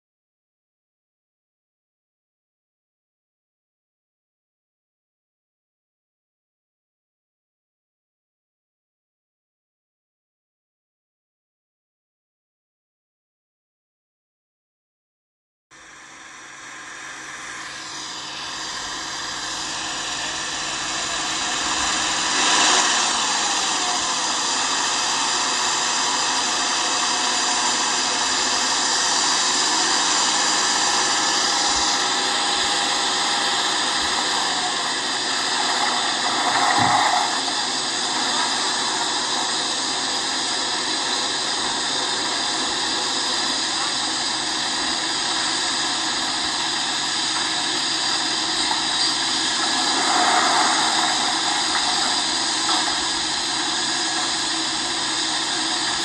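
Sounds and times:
tractor engine droning: 0:15.8 - 0:56.0.

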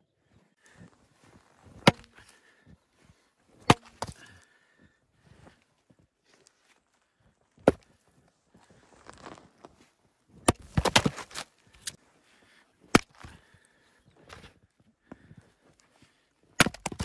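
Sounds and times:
footsteps crunching in snow: 0:07.8 - 0:12.6
wood cracking as it splits: 0:10.4 - 0:12.0, 0:16.6 - 0:17.0.

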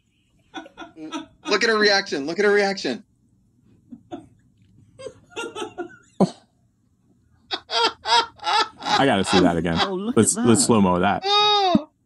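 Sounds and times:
man laughing: 0:05.0 - 0:06.4, 0:07.5 - 0:11.5.

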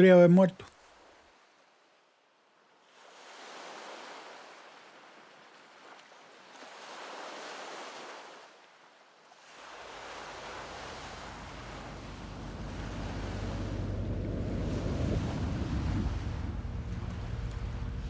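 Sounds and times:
sea waves washing in: 0:02.8 - 0:18.0
low rumble: 0:10.3 - 0:18.0.

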